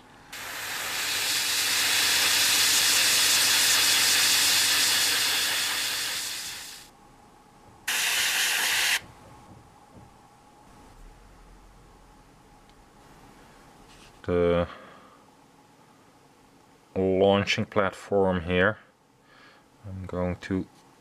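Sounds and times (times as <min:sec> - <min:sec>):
airbrush spraying hiss: 0:00.3 - 0:06.9, 0:07.9 - 0:09.0.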